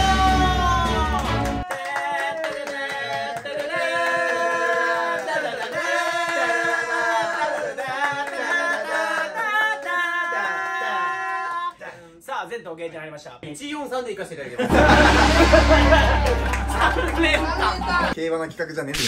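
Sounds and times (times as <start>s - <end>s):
group singing a cappella chords: 2.0s - 11.2s.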